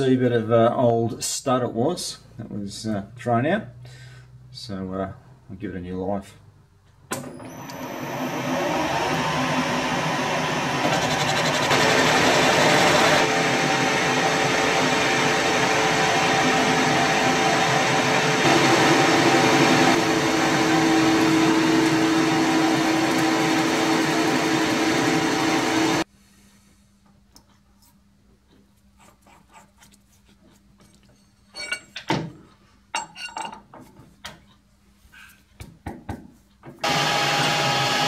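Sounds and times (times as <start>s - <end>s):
machine tool running: 7.6s - 26.0s, 36.8s - 38.0s.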